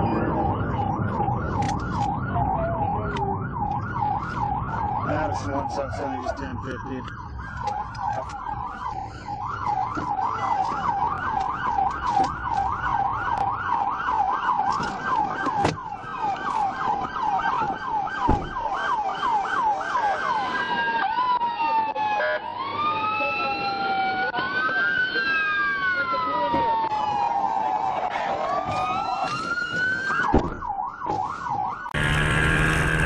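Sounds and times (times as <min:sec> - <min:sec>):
police siren yelping and wailing: 0:00.0 - 0:33.0.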